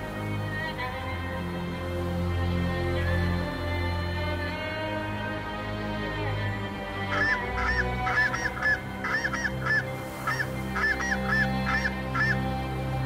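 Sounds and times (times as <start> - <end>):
background music: 0.0 - 13.0
geese honking: 6.9 - 13.0.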